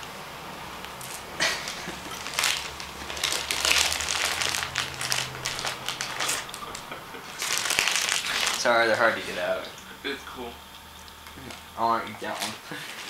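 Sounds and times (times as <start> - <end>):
plastic bag crinkling: 0.8 - 9.6, 12.2 - 13.0.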